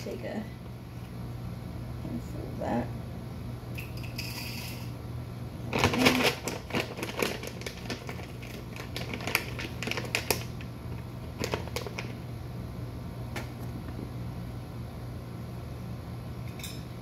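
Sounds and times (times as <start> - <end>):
crisp crackles and taps: 6.1 - 10.7, 11.4 - 12.2.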